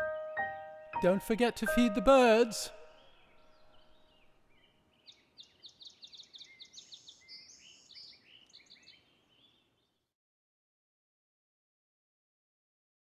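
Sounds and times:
birds chirping and trilling: 0:00.0 - 0:10.0.

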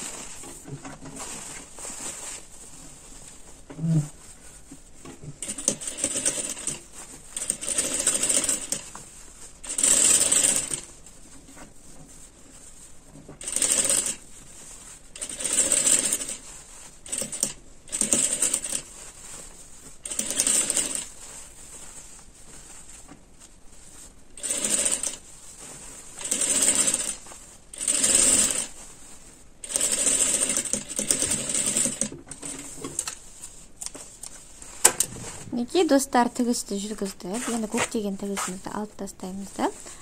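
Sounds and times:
electric sewing machine running: 0:07.4 - 0:08.8, 0:09.6 - 0:10.8, 0:13.4 - 0:14.2, 0:15.2 - 0:16.4, 0:20.1 - 0:21.0, 0:24.4 - 0:25.2, 0:26.2 - 0:27.2, 0:27.8 - 0:28.7, 0:29.6 - 0:32.1.

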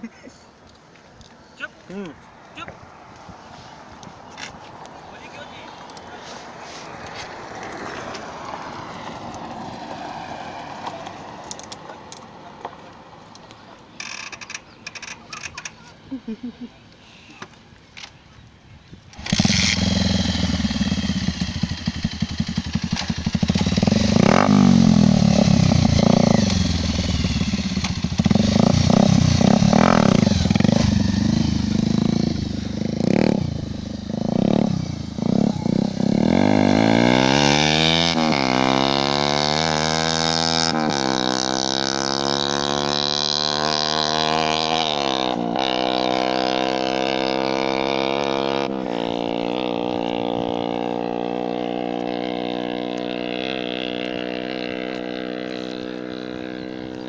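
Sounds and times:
motorcycle engine revving: 0:19.1 - 0:57.0.

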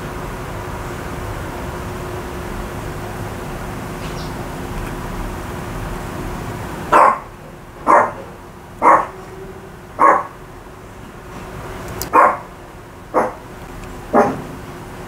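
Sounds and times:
dog barking: 0:06.9 - 0:09.3, 0:10.0 - 0:10.4, 0:12.1 - 0:13.5, 0:14.1 - 0:14.6.

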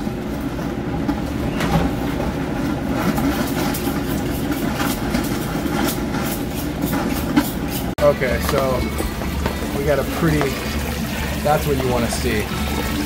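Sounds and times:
low mechanical hum: 0:00.0 - 0:13.0
water and air sputtering from hose: 0:08.0 - 0:13.0.

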